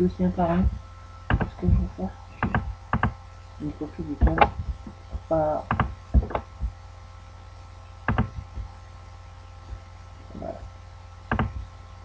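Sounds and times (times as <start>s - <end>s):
low electrical hum: 0.0s - 12.0s
computer mouse clicking: 1.3s - 1.6s, 2.4s - 3.2s, 5.7s - 6.7s, 8.1s - 8.7s, 11.3s - 11.6s.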